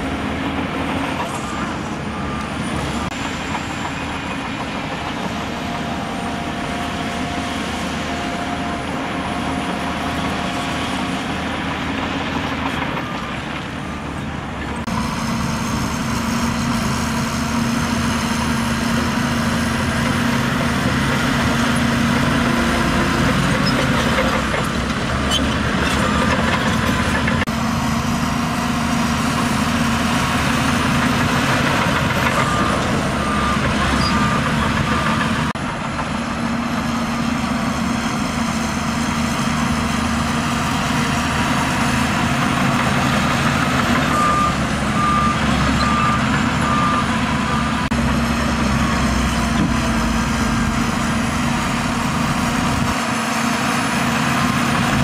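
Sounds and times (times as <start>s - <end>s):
bulldozer diesel engine running: 0.0s - 55.0s
reversing alarm beeping: 0.8s - 10.5s, 29.8s - 35.5s, 41.4s - 47.9s.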